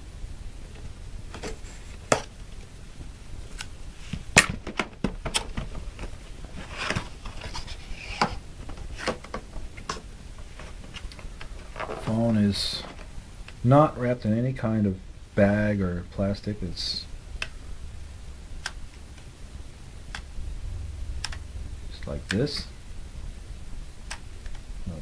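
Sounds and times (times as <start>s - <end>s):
cardboard scraping and rustling: 5.3s - 9.4s, 10.4s - 13.2s
sharp clicks and taps: 21.2s - 21.5s.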